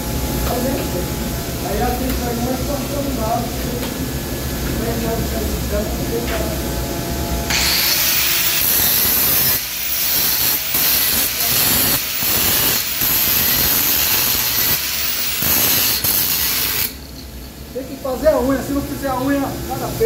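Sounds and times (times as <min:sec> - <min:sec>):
angle grinder grinding steel: 0:07.5 - 0:17.1.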